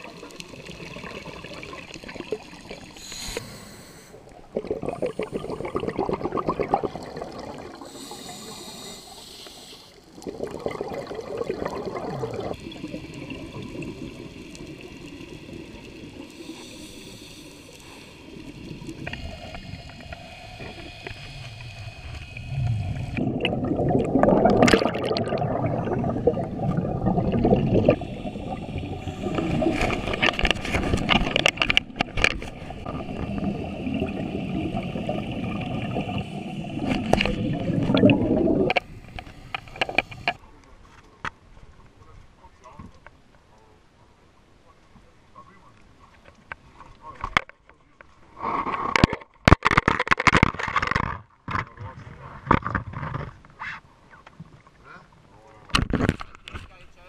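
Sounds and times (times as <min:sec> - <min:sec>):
exhaled bubbles gurgling: 0:00.0 - 0:03.5, 0:04.2 - 0:40.4
regulator inhale hiss: 0:02.9 - 0:04.4, 0:07.8 - 0:10.2, 0:15.7 - 0:23.2, 0:38.8 - 0:40.4.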